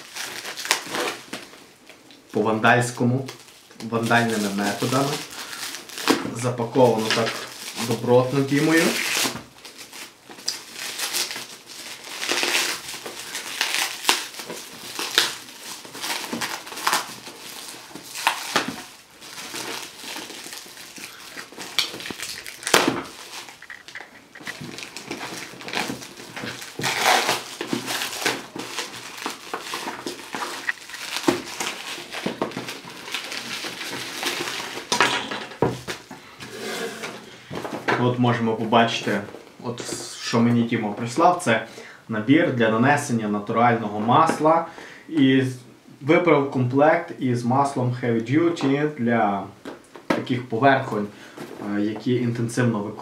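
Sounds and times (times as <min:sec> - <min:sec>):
plastic wrapping crinkling and ripping: 0:00.0 - 0:41.3.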